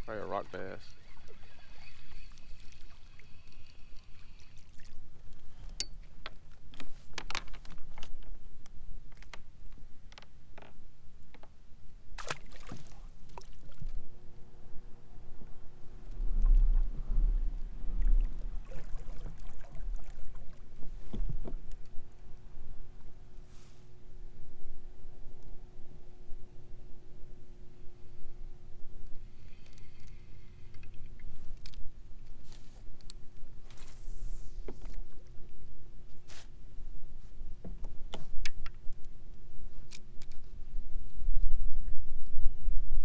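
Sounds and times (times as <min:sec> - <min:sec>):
low rumble: 0:14.0 - 0:23.3
water washing against hull: 0:16.2 - 0:21.6.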